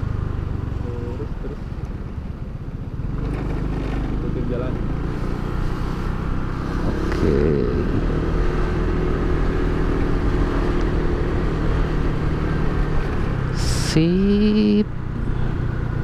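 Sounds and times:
motor scooter engine running: 0:00.0 - 0:10.1
wind rushing over microphone: 0:05.1 - 0:13.6.

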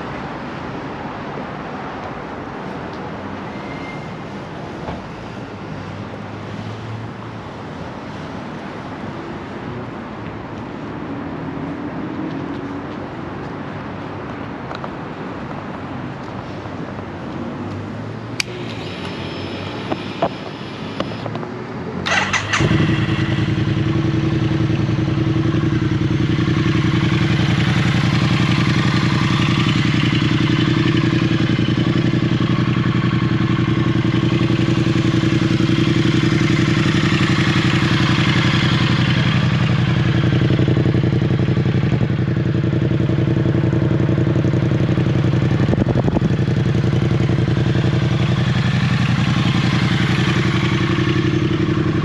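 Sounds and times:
motorcycle engine starting and idling: 0:18.4 - 0:21.4, 0:22.0 - 0:52.0.

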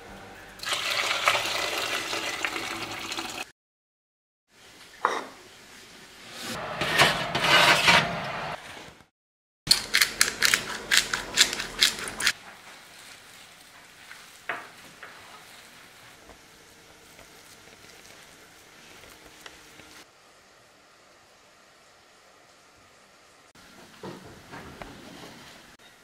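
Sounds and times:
spice mill crunching clicks: 0:09.7 - 0:12.3.

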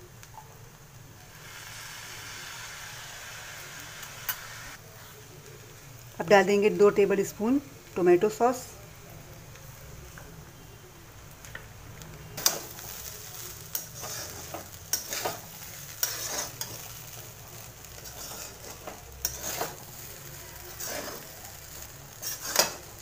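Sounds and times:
rice sizzling: 0:00.0 - 0:23.0
metal spatula scraping a pan: 0:13.7 - 0:17.2, 0:17.9 - 0:23.0.

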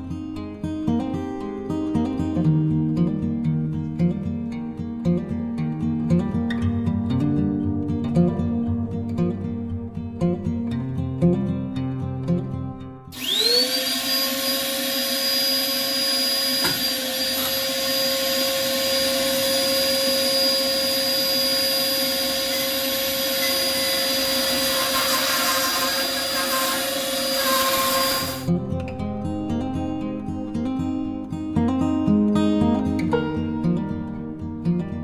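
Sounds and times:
acoustic guitar music: 0:00.0 - 0:13.2, 0:27.5 - 0:35.0
bandsaw whining: 0:13.1 - 0:28.5.

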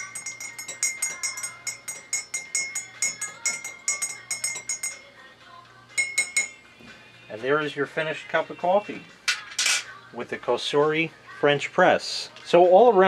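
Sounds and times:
teaspoon clinking in ceramic cup: 0:00.0 - 0:05.1, 0:06.0 - 0:06.6.

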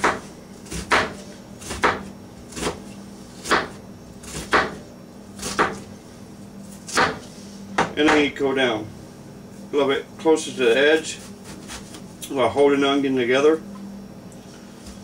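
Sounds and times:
knife slicing onion on cutting board: 0:00.0 - 0:04.8, 0:05.4 - 0:05.8, 0:06.9 - 0:08.3, 0:11.2 - 0:12.0.

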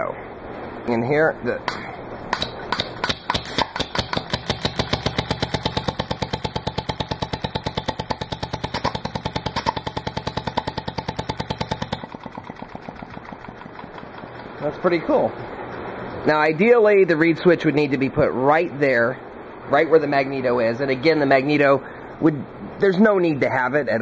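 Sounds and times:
air-powered engine puffing and clicking: 0:01.6 - 0:15.9.

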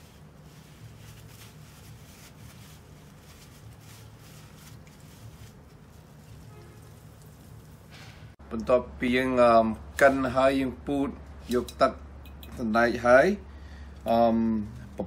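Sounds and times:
wet cloth bag squelching: 0:00.4 - 0:07.9
liquid trickling through strainer: 0:00.4 - 0:08.4.

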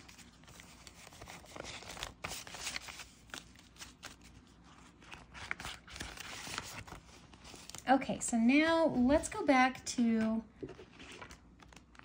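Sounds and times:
paper banknotes rustling: 0:00.0 - 0:07.8.

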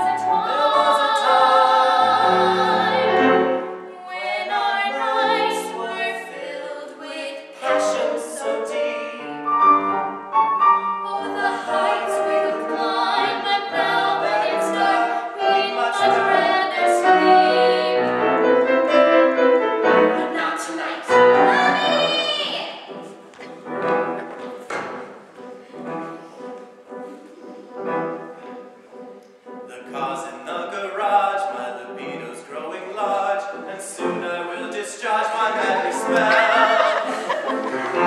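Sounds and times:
piano accompaniment: 0:00.0 - 0:06.3, 0:07.6 - 0:38.0
person singing with vibrato: 0:00.0 - 0:09.5, 0:29.7 - 0:37.6.

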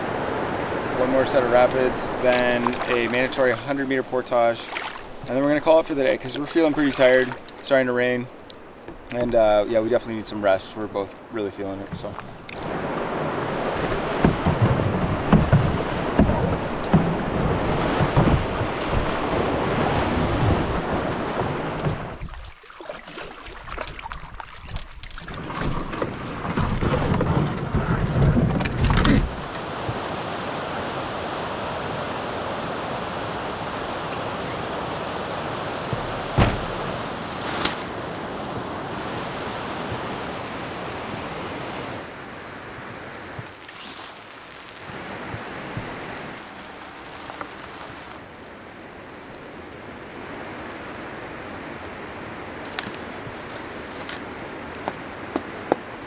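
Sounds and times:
whitewater rapids rushing: 0:00.0 - 0:07.4, 0:29.3 - 0:43.2.

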